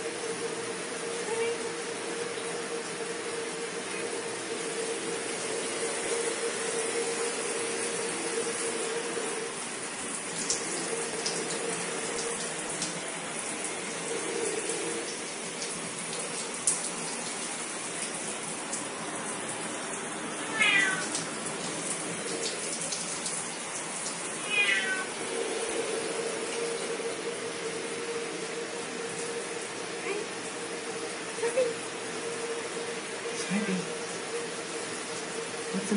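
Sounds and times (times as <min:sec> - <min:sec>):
background hiss and hum: 0:00.0 - 0:35.9
cat meowing: 0:20.4 - 0:21.1, 0:24.4 - 0:25.2.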